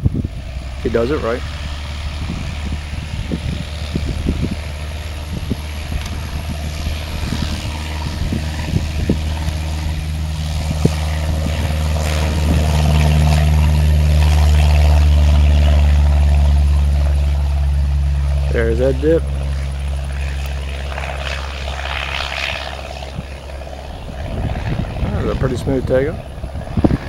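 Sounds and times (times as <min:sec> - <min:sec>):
propeller plane engine droning: 0:00.0 - 0:27.0.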